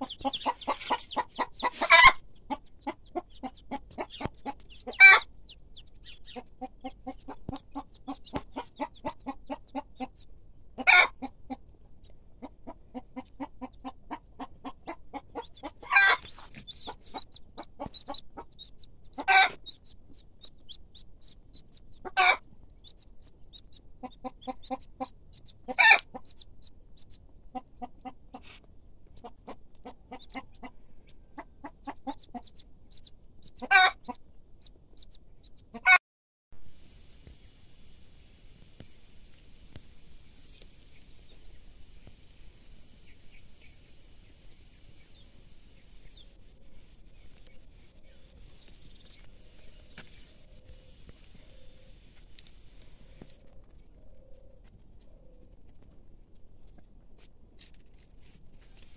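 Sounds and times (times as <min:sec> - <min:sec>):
chicken squawks: 0:00.0 - 0:05.3, 0:10.8 - 0:11.6, 0:12.9 - 0:19.9, 0:21.9 - 0:22.5, 0:24.0 - 0:26.4, 0:33.6 - 0:34.2, 0:35.7 - 0:36.0
chickens clucking: 0:00.0 - 0:34.9, 0:35.6 - 0:36.0
chicks peeping: 0:00.0 - 0:36.0, 0:36.6 - 0:54.0.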